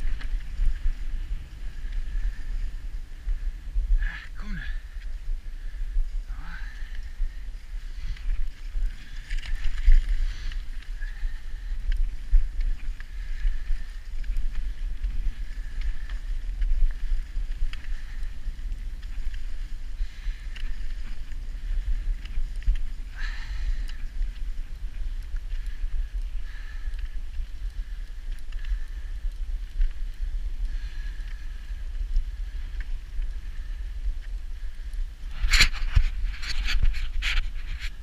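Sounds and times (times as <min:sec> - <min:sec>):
snow crunches and ticks: 0:00.0 - 0:38.0
wind rumbling on microphone: 0:00.0 - 0:38.0.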